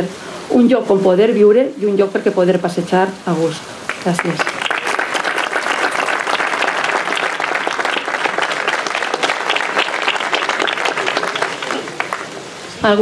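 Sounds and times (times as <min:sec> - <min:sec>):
audience applauding: 0:03.9 - 0:12.5.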